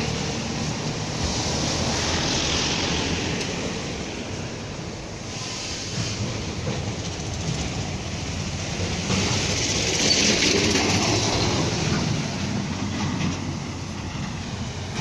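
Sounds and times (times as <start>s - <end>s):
vehicle passing by: 0.0s - 4.3s
street traffic rumble and hiss: 0.0s - 15.0s.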